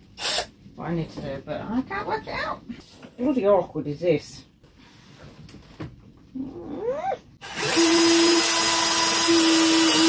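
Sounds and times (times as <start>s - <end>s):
cordless drill boring into wood: 7.4s - 10.0s.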